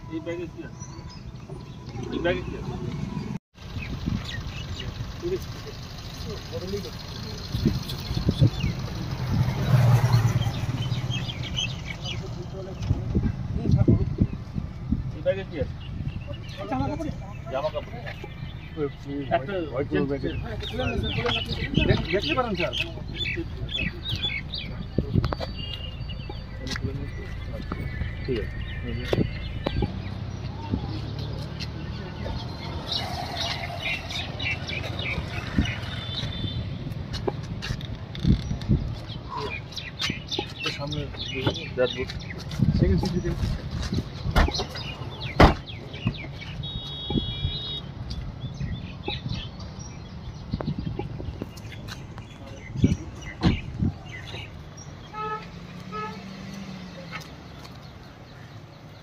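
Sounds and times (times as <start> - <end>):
low traffic rumble: 0.0 - 59.0
vehicle horn toots: 35.9 - 36.8, 46.6 - 47.9, 55.1 - 56.3.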